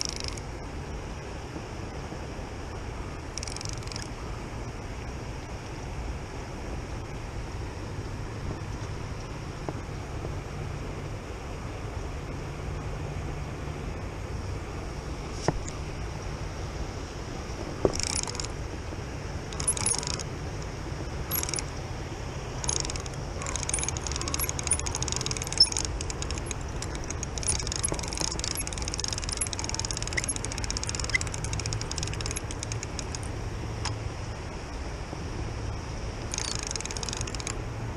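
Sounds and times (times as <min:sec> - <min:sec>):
fishing reel clicking: 0:00.0 - 0:00.4, 0:03.3 - 0:04.2, 0:17.8 - 0:18.6, 0:19.5 - 0:21.8, 0:22.6 - 0:34.0, 0:36.3 - 0:37.6
river rushing: 0:00.0 - 0:37.9.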